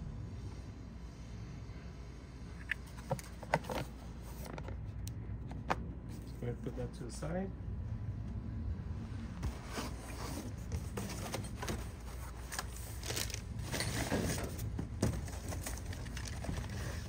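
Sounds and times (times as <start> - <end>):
cardboard box scraping and rustling: 9.4 - 17.0.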